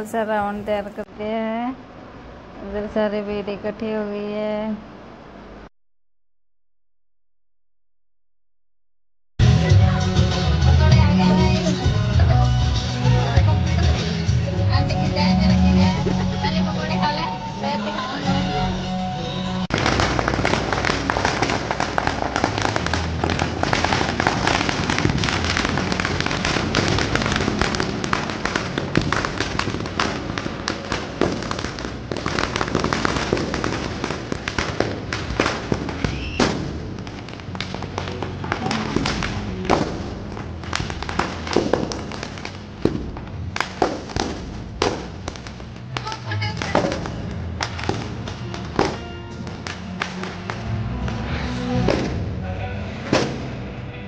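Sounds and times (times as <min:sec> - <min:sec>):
firecrackers crackling and banging: 0:19.7 - 0:52.4, 0:53.0 - 0:53.8.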